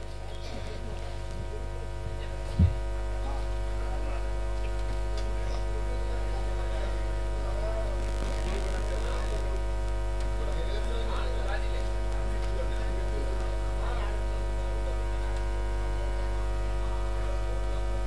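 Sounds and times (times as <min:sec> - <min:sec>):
electrical mains hum: 0:00.0 - 0:18.0
microphone knock: 0:02.5 - 0:02.8.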